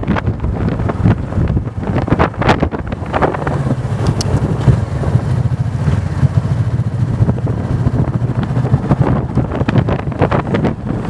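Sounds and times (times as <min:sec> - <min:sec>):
motorcycle engine droning: 0:00.0 - 0:11.0.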